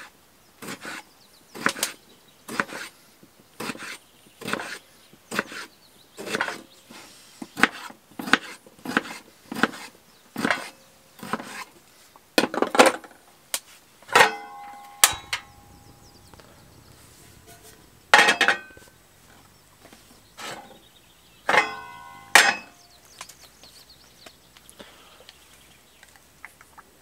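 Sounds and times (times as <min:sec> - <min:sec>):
metallic clinks: 0:14.2 - 0:18.9, 0:21.5 - 0:22.8.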